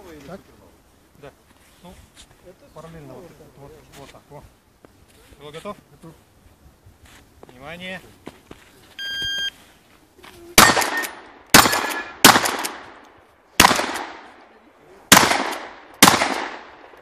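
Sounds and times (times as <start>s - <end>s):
electronic timer beep: 9.0s - 9.6s
shotgun shots with echo: 10.6s - 13.0s, 13.6s - 14.4s, 15.1s - 16.9s.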